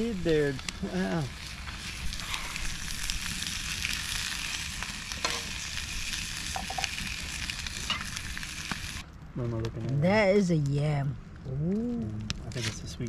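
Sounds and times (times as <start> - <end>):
sausages sizzling in a pan: 0.0 - 9.0
campfire crackles: 0.0 - 13.0.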